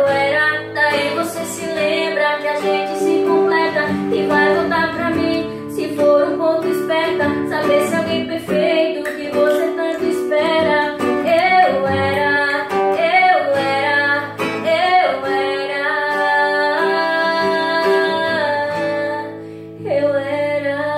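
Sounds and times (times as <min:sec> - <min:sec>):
acoustic guitar strumming: 0:00.0 - 0:19.8
woman singing: 0:00.0 - 0:20.9.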